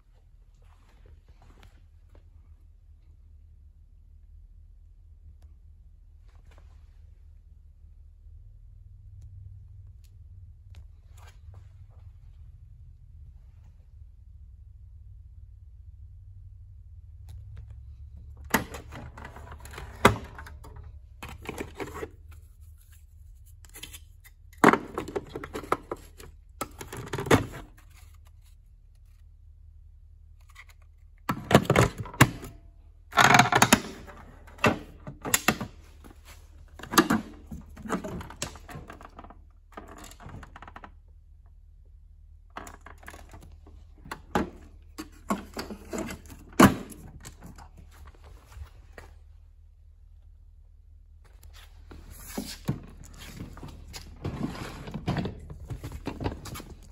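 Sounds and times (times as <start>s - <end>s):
plastic vacuum parts clicking and rattling: 18.4s - 22.5s, 23.7s - 28.3s, 30.5s - 41.0s, 42.5s - 47.8s, 52.4s - 56.9s.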